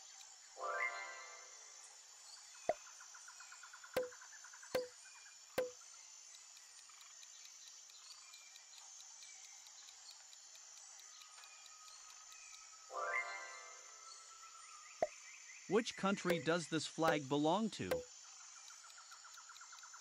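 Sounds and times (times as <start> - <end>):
fast countdown ticking: 15.7 - 18.1.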